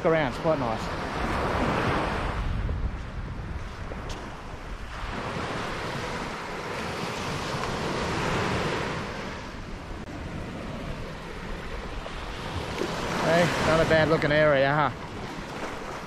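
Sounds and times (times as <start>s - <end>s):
wind noise on microphone: 0.9s - 16.0s
surf washing onto beach: 3.5s - 16.0s.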